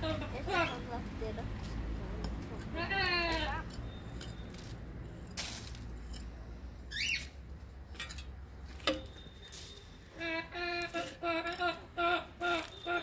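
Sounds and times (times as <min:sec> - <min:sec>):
child's voice: 0:00.1 - 0:01.6.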